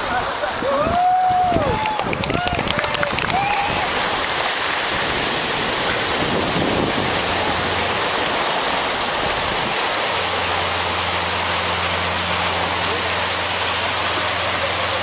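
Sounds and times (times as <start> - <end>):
surf breaking on sandy beach: 0.0 - 15.0
wind buffeting microphone: 0.6 - 9.9
low steady hum: 2.7 - 15.0.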